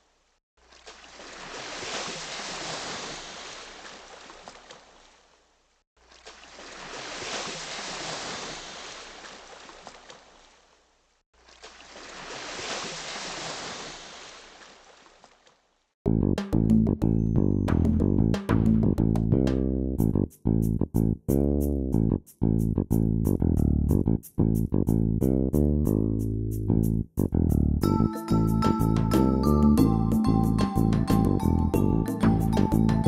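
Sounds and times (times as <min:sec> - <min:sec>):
ocean waves washing in: 0:01.1 - 0:04.6, 0:06.4 - 0:10.0, 0:11.8 - 0:14.9.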